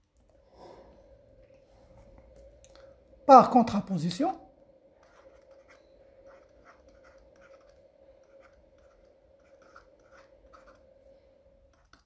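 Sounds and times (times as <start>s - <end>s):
faint steady hum: 0.0s - 12.0s
stylus scratching on tablet: 4.9s - 12.0s.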